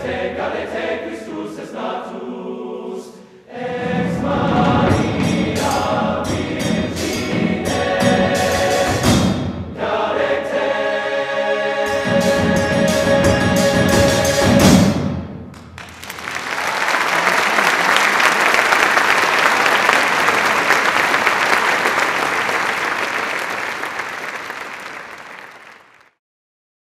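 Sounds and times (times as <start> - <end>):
men's choir and percussion chord: 0.0 - 15.1
audience applause: 15.7 - 26.2.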